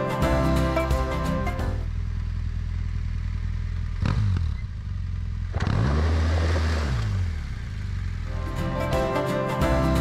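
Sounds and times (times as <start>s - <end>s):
motorcycle engine revving: 1.8s - 8.4s.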